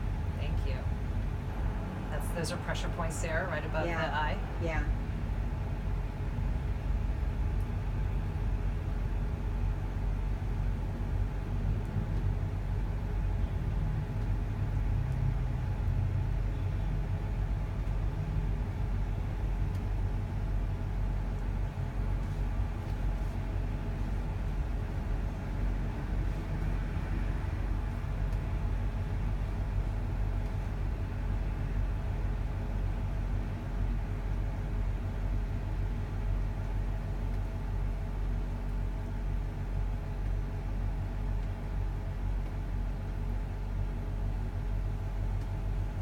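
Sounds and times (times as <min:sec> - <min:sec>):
machinery humming: 0:00.0 - 0:06.4.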